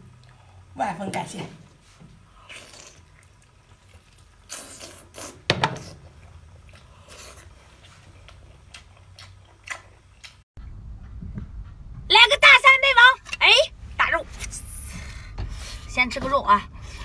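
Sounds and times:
person chewing: 0:02.4 - 0:10.4
wet smacks and slurps: 0:02.4 - 0:10.4.

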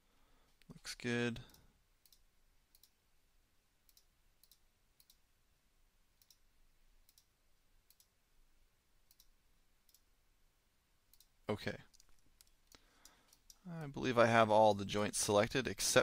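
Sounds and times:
computer mouse clicks: 0:01.5 - 0:03.0, 0:03.9 - 0:05.2, 0:06.2 - 0:06.4, 0:07.0 - 0:07.3, 0:07.9 - 0:08.1, 0:09.1 - 0:10.1, 0:11.1 - 0:11.3, 0:11.9 - 0:13.7.

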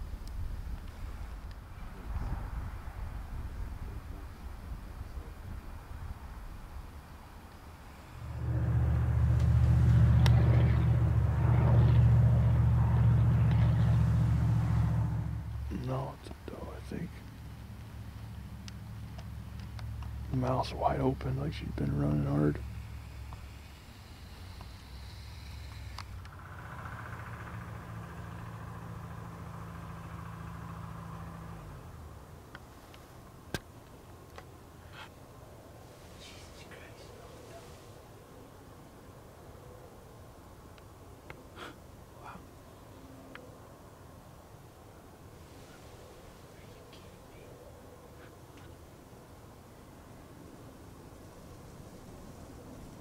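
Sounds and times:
engine humming: 0:00.0 - 0:39.4, 0:40.4 - 0:53.0
vehicle engine droning: 0:07.8 - 0:33.4.

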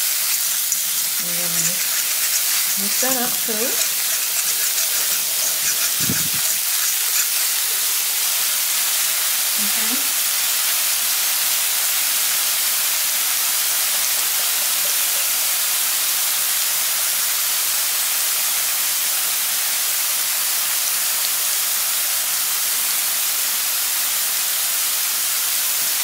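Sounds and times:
garlic sizzling in hot oil: 0:00.0 - 0:26.0.

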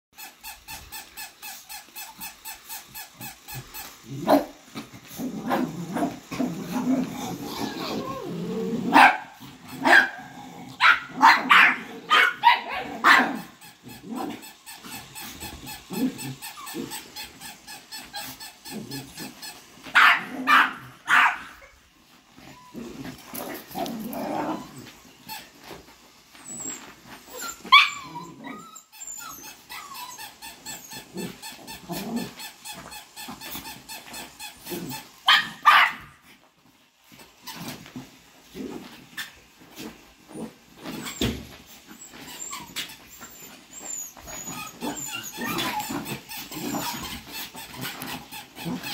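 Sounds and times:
dog play growling: 0:01.0 - 0:35.3, 0:37.1 - 0:48.9
small dogs barking: 0:08.8 - 0:13.6, 0:19.9 - 0:21.7, 0:35.2 - 0:36.2.

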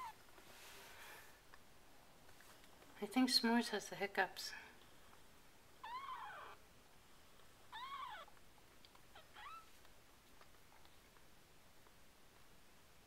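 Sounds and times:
kitten mewing: 0:07.7 - 0:08.3.

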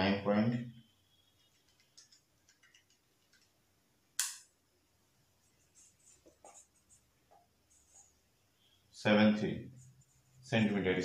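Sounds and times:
calculator keys clicking: 0:01.4 - 0:03.5
marker writing on whiteboard: 0:05.4 - 0:08.7.

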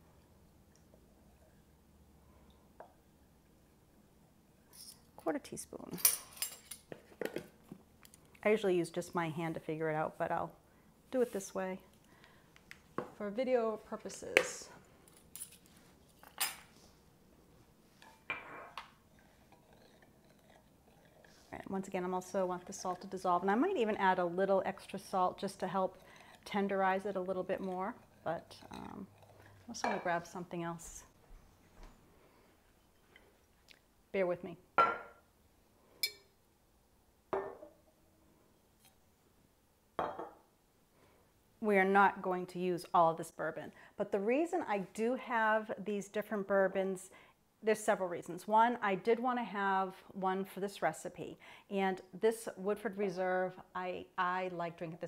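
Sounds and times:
bottle knocking on countertop: 0:37.3 - 0:37.7, 0:40.0 - 0:40.4.

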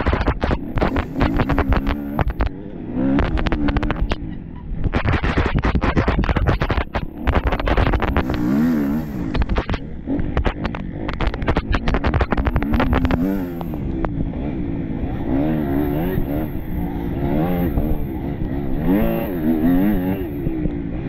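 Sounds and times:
sharp knocks and clatters: 0:00.0 - 0:02.5, 0:04.8 - 0:14.2
motorcycle engine revving: 0:00.0 - 0:21.0.

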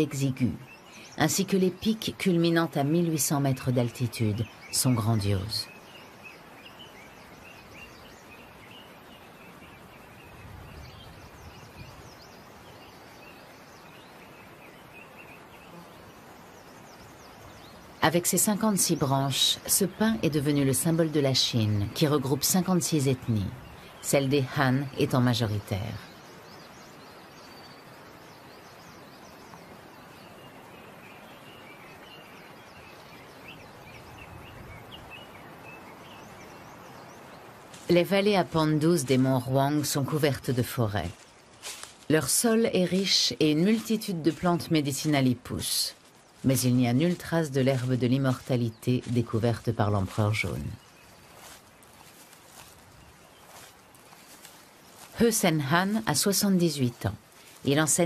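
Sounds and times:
small birds chirping: 0:00.0 - 0:58.0
steady background hiss: 0:00.0 - 0:58.0.

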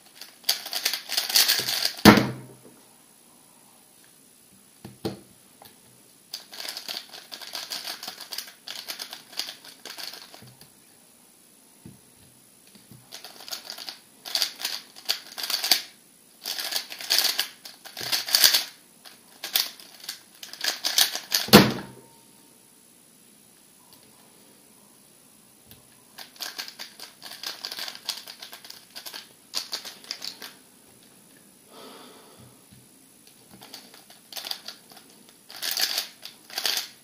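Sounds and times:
puzzle cube layers clacking: 0:00.2 - 0:02.0, 0:13.1 - 0:15.8, 0:26.2 - 0:30.5, 0:35.5 - 0:37.0
cube thump on mat: 0:01.6 - 0:02.6.

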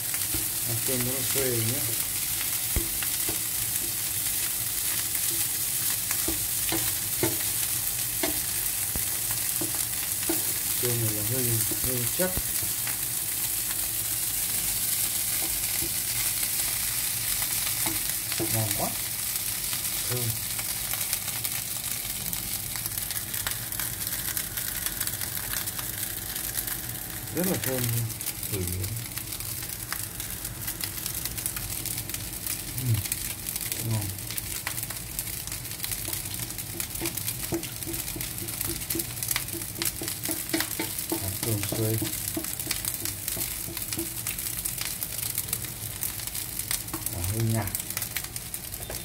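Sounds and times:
rice sizzling in frying pan: 0:00.0 - 0:49.0.

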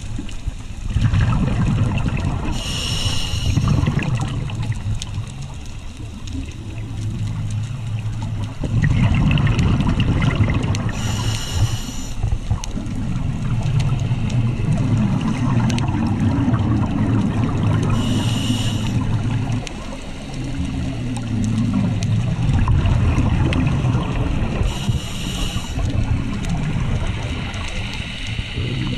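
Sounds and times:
exhaled bubbles gurgling underwater: 0:00.0 - 0:28.9
regulator inhalation hiss: 0:02.5 - 0:04.0, 0:10.9 - 0:12.4, 0:17.9 - 0:19.1, 0:24.6 - 0:26.0, 0:27.4 - 0:28.9.

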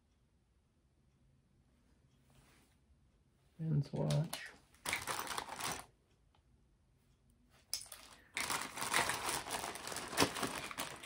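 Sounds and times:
plastic bag crinkling: 0:04.3 - 0:05.9, 0:07.8 - 0:11.0.

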